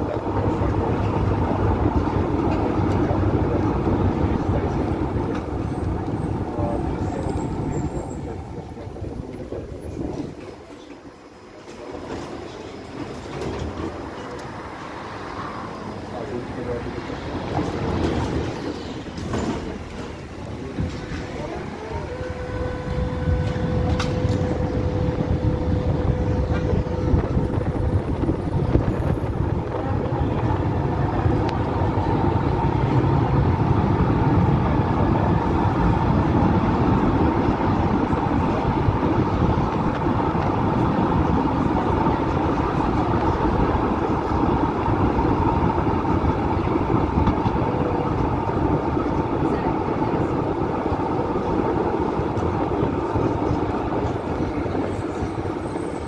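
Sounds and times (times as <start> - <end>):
tram wheels rumbling on rail: 0.0 - 56.0
tram whine: 0.0 - 56.0.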